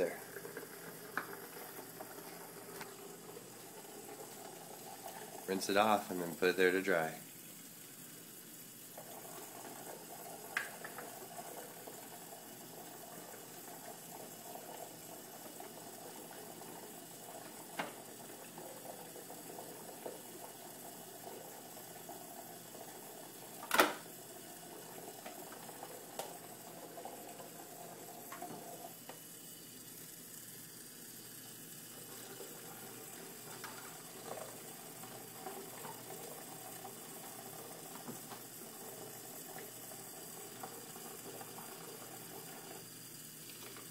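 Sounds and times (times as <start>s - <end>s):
tap running into sink: 10.5s - 11.2s, 17.4s - 18.2s, 23.6s - 24.1s, 37.8s - 38.6s.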